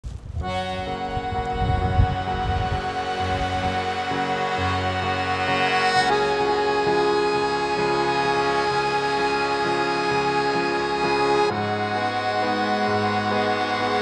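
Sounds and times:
instrumental music with sustained chords: 0.4s - 14.0s.

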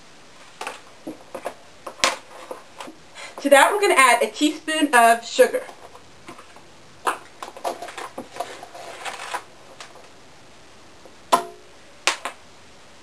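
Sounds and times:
sharp knock: 11.3s - 12.3s.

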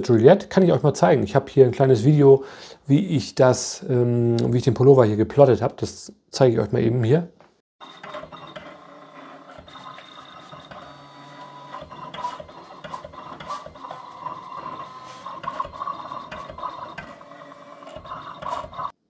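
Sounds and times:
cutting plotter motors whining: 7.8s - 19.0s.

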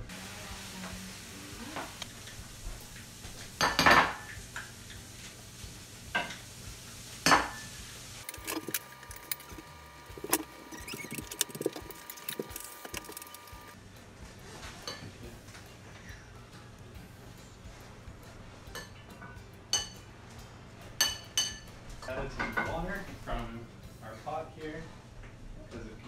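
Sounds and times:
knife and utensils clicking: 8.2s - 13.6s.

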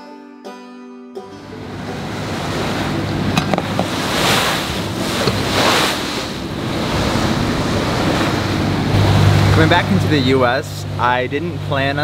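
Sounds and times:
boat engine humming: 1.3s - 12.0s
water rushing along hull: 1.4s - 12.0s
wind buffeting microphone: 1.6s - 10.6s.

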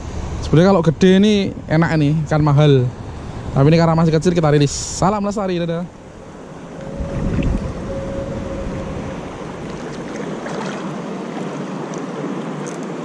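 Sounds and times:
wind on microphone: 5.4s - 11.5s
choppy seawater lapping: 5.8s - 13.0s.

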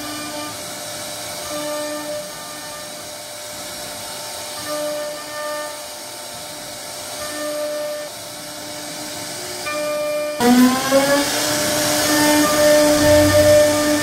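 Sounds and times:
router spindle whining: 4.1s - 14.0s
bit cutting wood: 10.4s - 14.0s.

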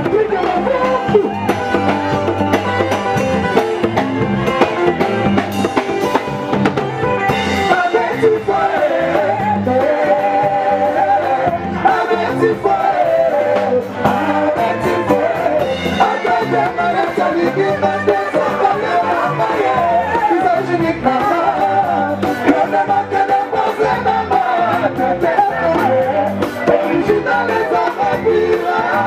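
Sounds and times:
steady drum beat: 0.0s - 29.0s
singing: 7.6s - 29.0s.

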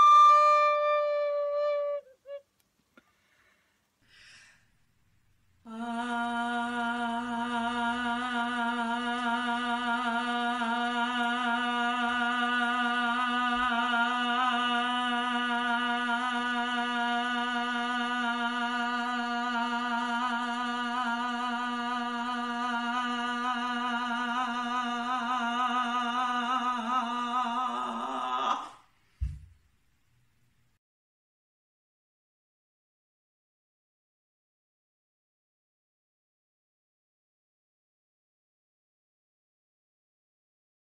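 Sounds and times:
woman singing a sustained note: 5.7s - 28.8s.

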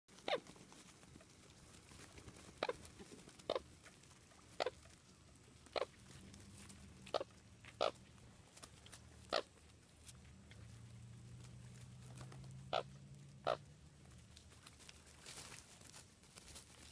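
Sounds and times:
coots calling: 0.2s - 1.4s, 2.4s - 3.8s, 4.5s - 8.2s, 9.0s - 9.7s, 11.5s - 14.0s.

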